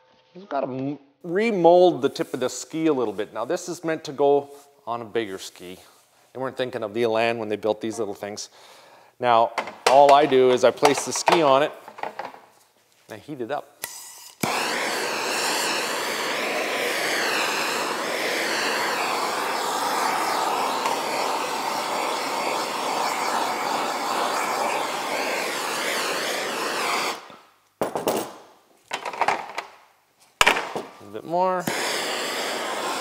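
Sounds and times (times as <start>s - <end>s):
gas torch hissing: 13.8s - 27.5s, 30.6s - 33.0s.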